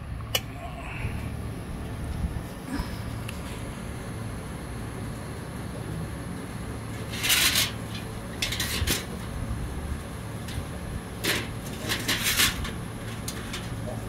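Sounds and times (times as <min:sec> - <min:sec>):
low steady background hum: 0:00.0 - 0:14.0
light clicking and scraping of parts: 0:06.9 - 0:09.3, 0:10.4 - 0:14.0.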